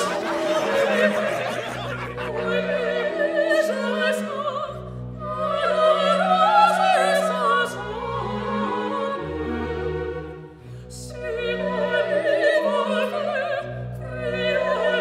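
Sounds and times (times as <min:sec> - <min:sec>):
orchestral accompaniment: 0:00.0 - 0:04.4
operatic singer with vibrato: 0:00.0 - 0:09.3.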